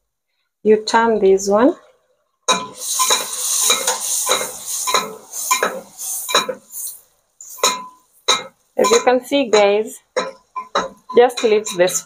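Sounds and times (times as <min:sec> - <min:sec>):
food sizzling in hot oil: 0:02.5 - 0:12.0
metal turner scraping metal pot: 0:02.5 - 0:12.0.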